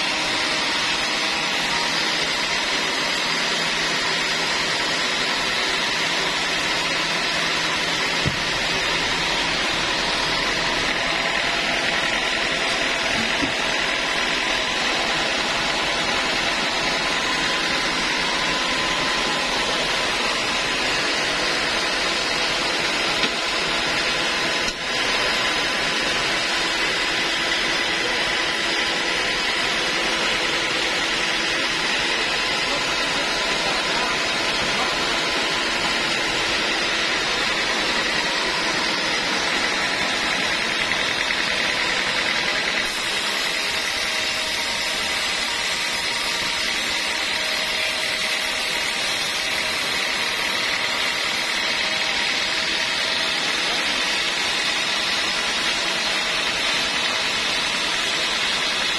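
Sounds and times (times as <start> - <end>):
band saw running: 0.0 - 58.9
saw blade cutting wood: 0.0 - 58.9
hammer knocks on metal clamps: 8.2 - 8.6.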